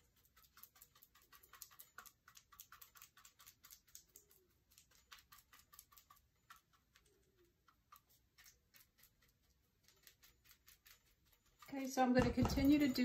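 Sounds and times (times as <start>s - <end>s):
paintbrush tapping: 11.9s - 13.0s.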